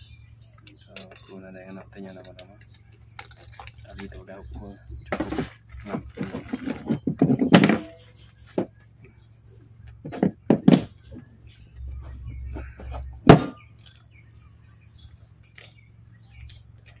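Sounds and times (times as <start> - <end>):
handling knocks: 0.6 - 9.2, 9.9 - 14.0.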